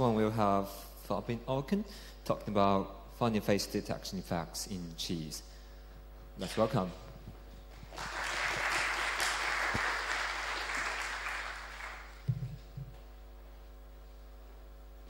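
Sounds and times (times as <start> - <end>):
audience applause: 7.9 - 12.3.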